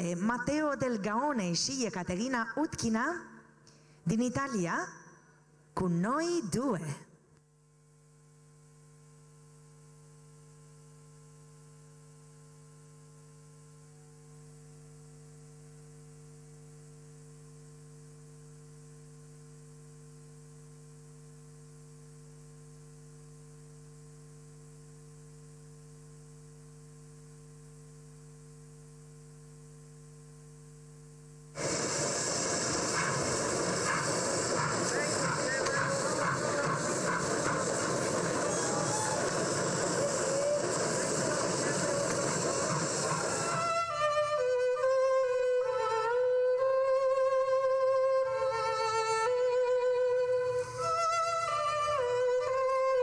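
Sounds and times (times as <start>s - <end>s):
electrical mains hum: 0.0s - 44.4s
steady low tones: 31.6s - 43.8s
loud rushing noise: 31.6s - 43.9s.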